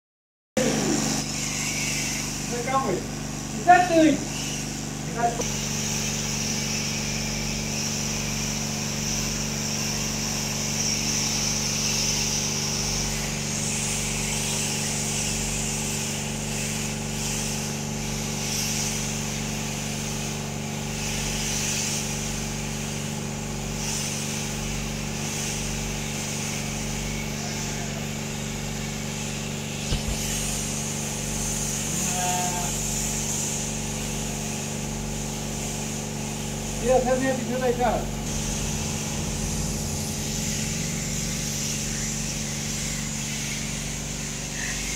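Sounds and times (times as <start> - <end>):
high buzz of shearing cutters: 0.6 - 44.9
motors humming: 29.8 - 30.7, 37.1 - 43.3.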